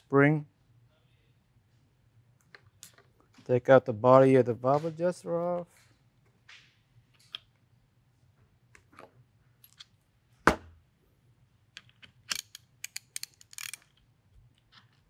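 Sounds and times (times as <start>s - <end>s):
metal parts clicking: 11.8s - 15.0s.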